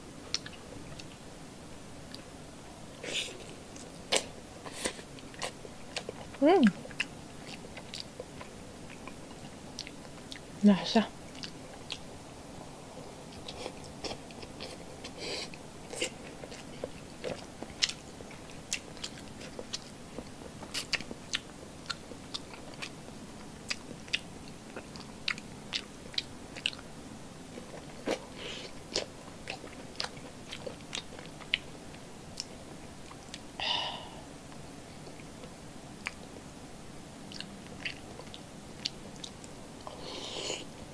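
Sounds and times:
mouth chewing: 3.0s - 10.5s, 11.3s - 12.0s, 13.3s - 22.9s, 23.7s - 26.9s, 37.3s - 40.6s.

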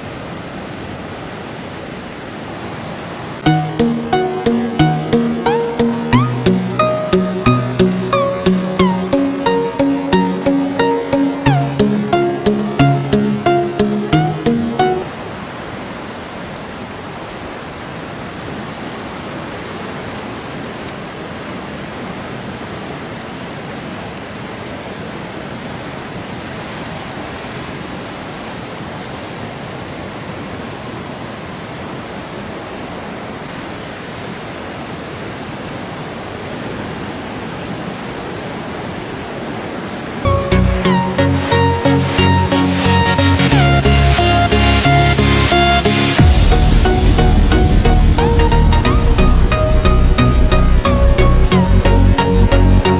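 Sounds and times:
ocean surf breaking: 0.0s - 52.9s
music with heavy beat: 40.3s - 52.9s.

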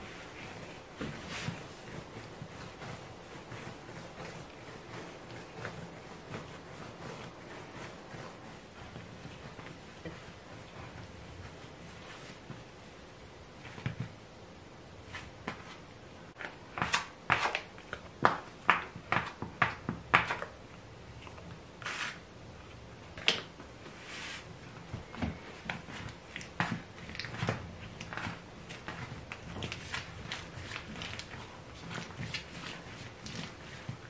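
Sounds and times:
dough slapping on wooden board: 16.3s - 20.6s.

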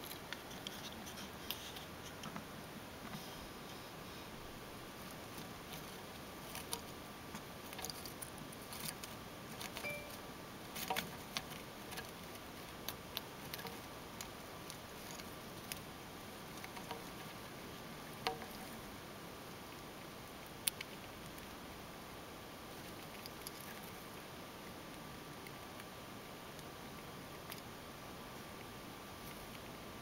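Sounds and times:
hamster nibbling crunches: 0.0s - 30.0s.

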